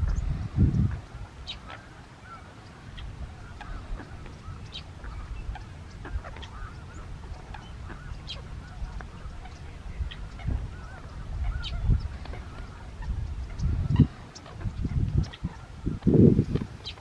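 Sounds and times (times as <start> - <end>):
high bird calls: 0.0 - 17.0
distant waterfowl honking: 1.0 - 16.2.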